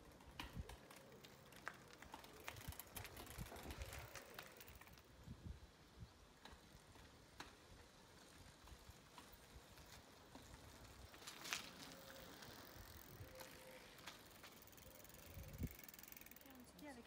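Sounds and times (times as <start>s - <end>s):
bicycles clicking and rattling: 0.0s - 17.0s.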